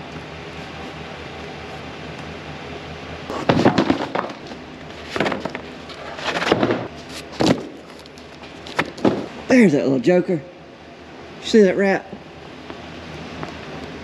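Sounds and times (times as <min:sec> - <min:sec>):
low steady hum: 0:00.0 - 0:14.0
loud bangs and clattering knocks: 0:03.3 - 0:05.7, 0:06.4 - 0:07.8, 0:08.8 - 0:09.4.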